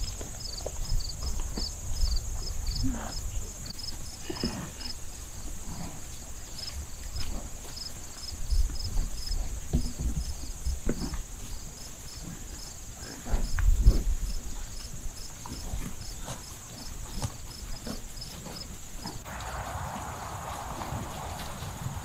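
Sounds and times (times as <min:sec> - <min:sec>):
crickets trilling: 0:00.0 - 0:22.0
cattle walking through dry grass: 0:15.8 - 0:22.0.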